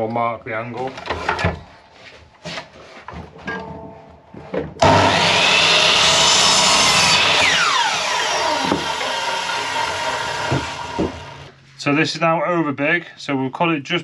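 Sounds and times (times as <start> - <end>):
mitre saw cutting wood: 4.8 - 11.5.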